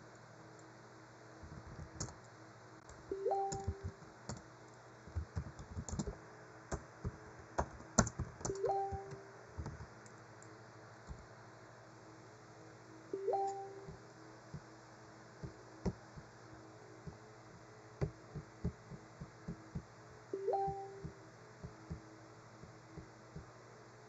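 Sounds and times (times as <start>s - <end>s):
computer keyboard clicking: 3.4s - 4.4s, 5.1s - 9.9s
two-note tone: 13.2s - 14.0s, 20.4s - 21.2s.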